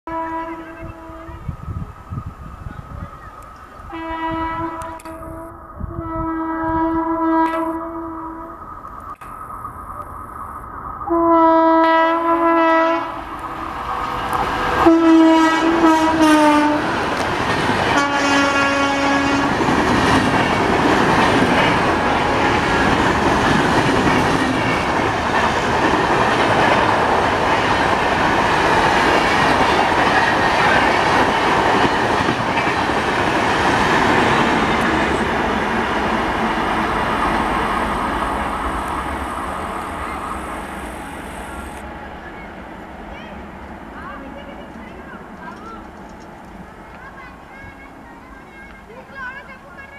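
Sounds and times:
locomotive horn blasts: 0.1s - 1.5s, 3.9s - 8.6s, 11.1s - 13.3s, 14.8s - 16.9s, 17.9s - 19.6s
train coaches rolling past: 0.1s - 49.9s.

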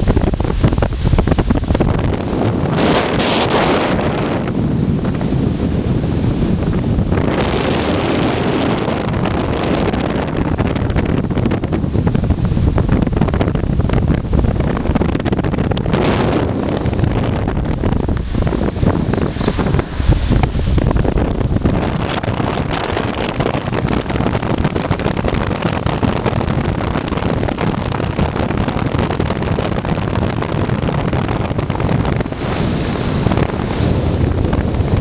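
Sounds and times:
wind buffeting microphone: 0.0s - 35.0s
car road noise: 11.8s - 27.6s.

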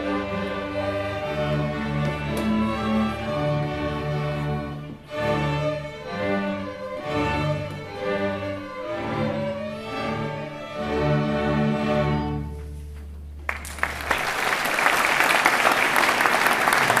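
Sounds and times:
string orchestra playing: 0.0s - 14.2s
audience applause: 13.5s - 17.0s.

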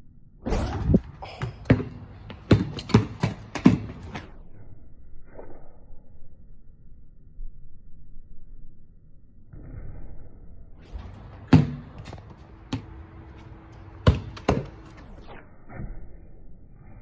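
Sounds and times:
basketball hitting hoop: 0.5s - 4.3s, 11.0s - 13.0s, 14.0s - 15.0s
basketball bouncing on concrete: 1.2s - 4.3s, 10.9s - 15.1s.

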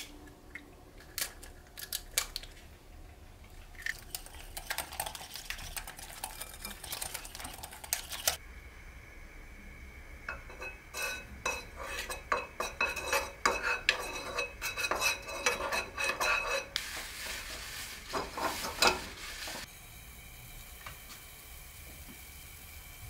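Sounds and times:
butter sizzling: 10.0s - 23.0s
spatula scraping frying pan: 10.3s - 19.7s
paper towel rubbing pan: 12.9s - 19.7s.

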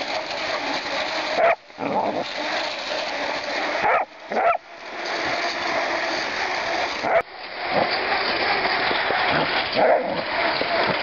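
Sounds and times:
puppy barking and yipping: 1.4s - 1.6s, 3.8s - 4.6s, 7.0s - 7.3s.

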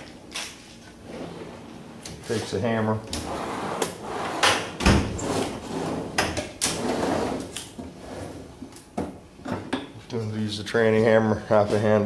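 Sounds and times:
metal drawer sliding: 1.0s - 8.5s.

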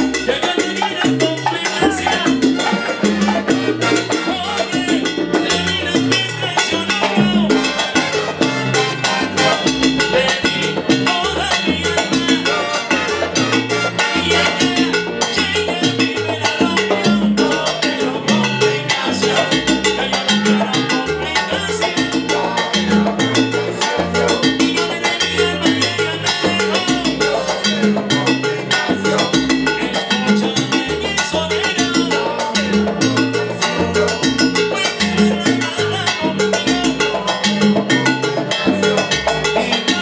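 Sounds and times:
salsa band playing: 0.0s - 40.0s
horn section: 1.6s - 5.0s, 7.4s - 10.8s, 12.4s - 15.2s.

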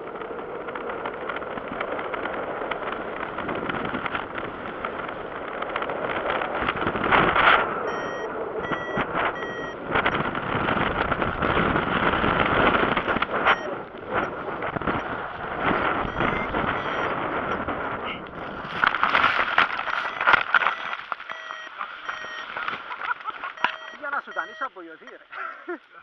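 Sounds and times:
wind rushing over microphone: 0.0s - 21.0s
short beeps: 7.8s - 9.8s, 13.4s - 14.4s, 16.0s - 17.1s, 19.9s - 22.5s, 23.5s - 25.2s.

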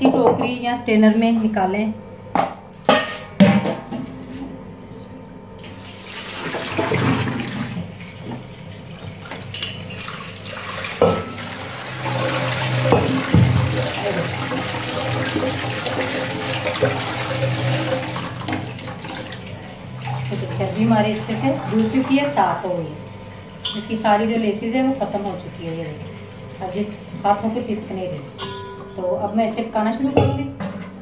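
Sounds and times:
water pouring into colander: 5.6s - 22.7s
tap running: 5.6s - 28.4s.

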